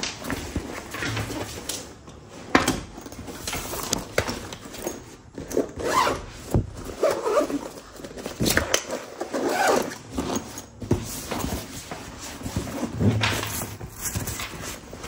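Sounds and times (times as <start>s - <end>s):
zipper rasping: 5.5s - 6.2s, 6.9s - 7.8s, 8.8s - 10.7s.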